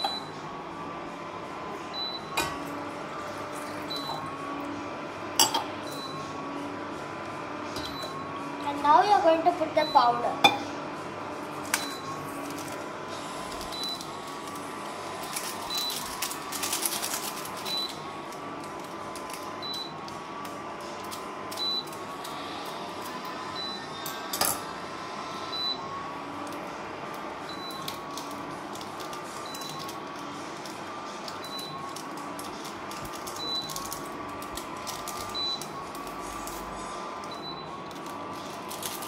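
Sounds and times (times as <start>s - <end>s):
sachet rustling: 14.3s - 17.7s, 37.9s - 39.0s.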